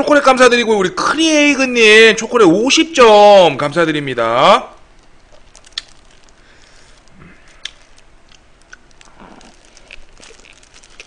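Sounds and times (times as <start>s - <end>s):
cabbage wrap crackling: 3.4s - 11.0s
moist mouth sounds: 5.2s - 11.0s.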